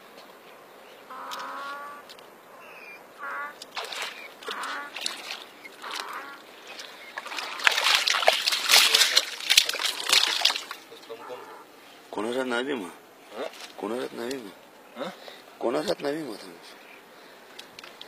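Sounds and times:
fish splashing in water: 3.5s - 11.0s.

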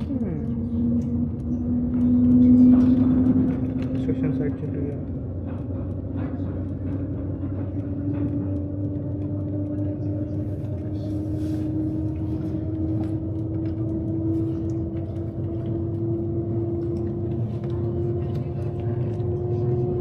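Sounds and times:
low train rumble: 0.0s - 20.0s
train whine rising in pitch: 7.0s - 20.0s.

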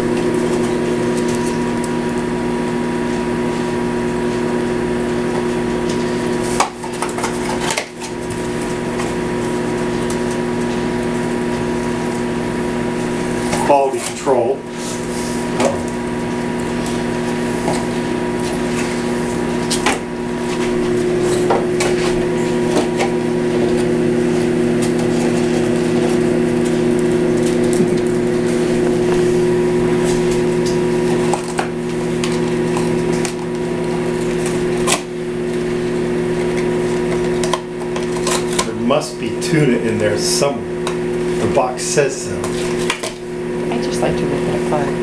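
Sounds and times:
steady low hum: 0.0s - 45.0s
dogs chewing cardboard: 5.3s - 11.7s, 13.0s - 38.8s, 42.3s - 43.3s
cardboard crunching and crackling: 16.7s - 38.8s.

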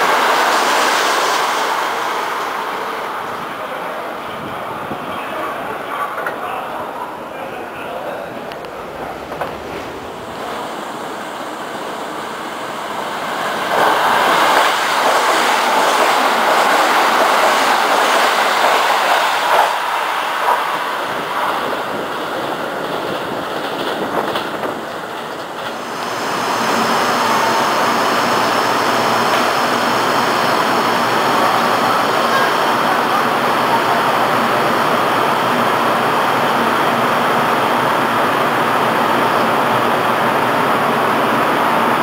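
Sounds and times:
train hum with high whine: 0.0s - 42.0s
train wheels clattering on rails: 13.3s - 27.6s.

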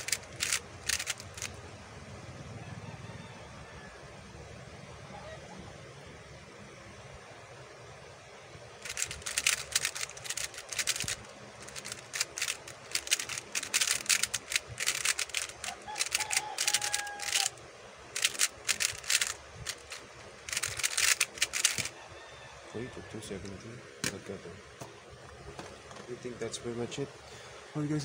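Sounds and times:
puzzle cube layers clicking: 0.0s - 1.6s, 8.8s - 17.5s, 18.2s - 21.9s.

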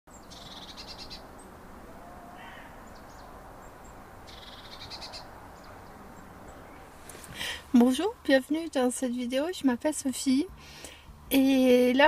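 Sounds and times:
birds trilling: 0.1s - 7.6s
faint background noise: 0.1s - 12.0s
short bird calls: 0.2s - 3.4s, 4.3s - 5.7s.

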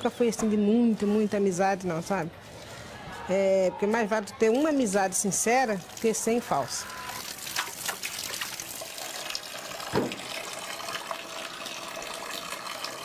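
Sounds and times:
small water splashes: 5.8s - 13.0s
tap water running into tub: 7.0s - 13.0s
low thud: 10.0s - 10.3s.

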